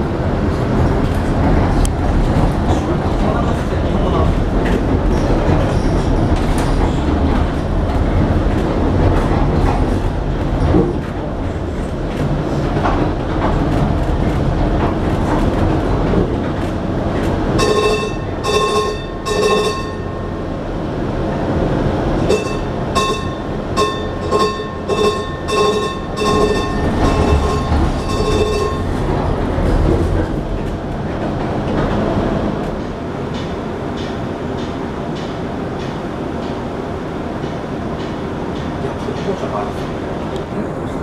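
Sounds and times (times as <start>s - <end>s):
streetcar rumble: 0.0s - 41.0s
wheels clattering on rails: 0.3s - 20.4s, 21.2s - 36.7s
bell strikes: 22.3s - 28.8s.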